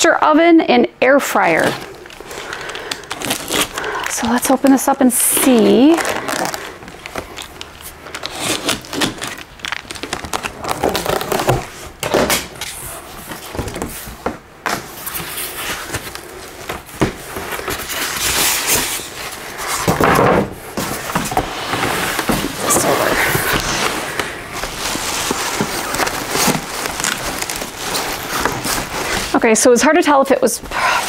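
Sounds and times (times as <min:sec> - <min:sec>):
rustling paper: 0:01.5 - 0:31.0
cardboard box being opened: 0:05.4 - 0:29.4.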